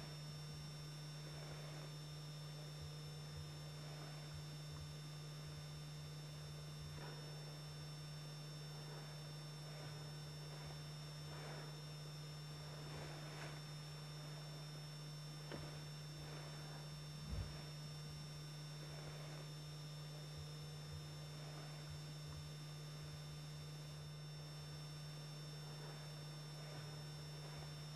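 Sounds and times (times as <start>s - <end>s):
faint hiss: 0.0s - 0.3s, 1.0s - 2.6s, 3.2s - 27.9s
low electrical hum: 0.0s - 27.9s
thin high whine: 0.0s - 27.9s.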